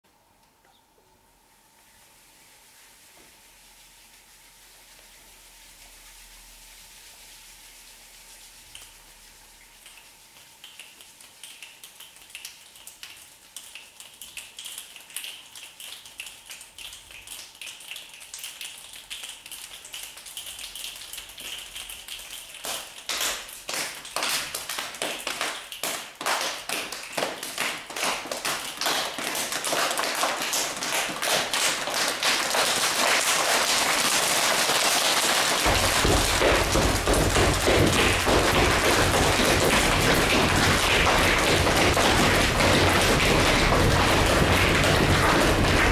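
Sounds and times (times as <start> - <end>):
claps and slaps patter: 9.8 - 45.9
feet stamping on wooden floor: 35.7 - 45.9.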